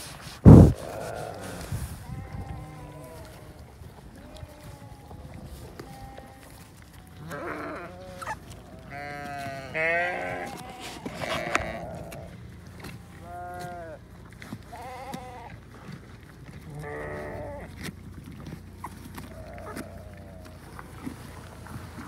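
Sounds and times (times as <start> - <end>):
sheep crunching pumpkin: 0.0 - 22.0
sheep bleating: 4.2 - 14.0, 14.7 - 15.6, 16.7 - 17.7.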